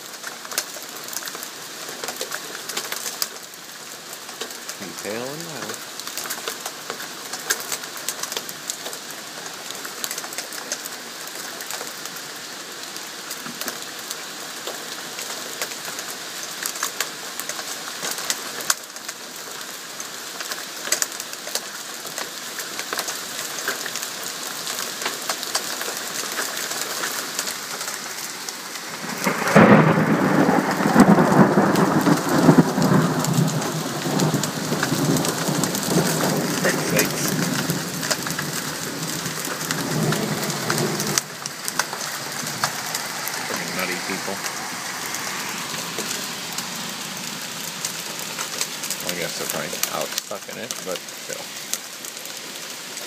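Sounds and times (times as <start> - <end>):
heavy rain and hail: 0.0 - 53.0
thunder crack and rumble: 28.9 - 44.6.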